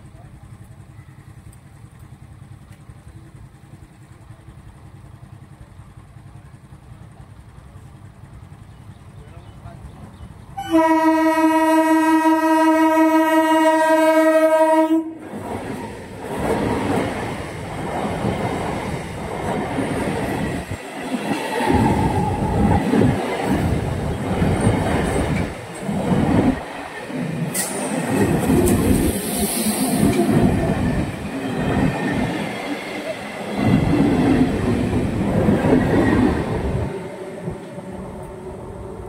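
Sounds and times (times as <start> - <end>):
train rushing past: 3.2 - 39.0
train horn blast: 10.6 - 15.2
wheels clattering over rail joints: 15.2 - 29.2.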